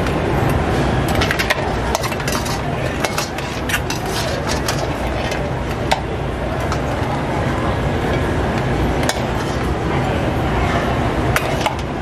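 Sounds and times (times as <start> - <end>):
dishes and utensils clinking: 1.1 - 6.0.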